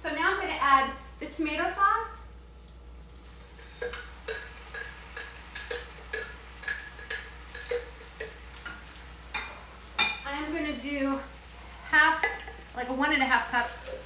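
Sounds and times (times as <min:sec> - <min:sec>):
faint sizzle: 0:00.0 - 0:14.0
spoon clinking against pan: 0:03.7 - 0:08.4.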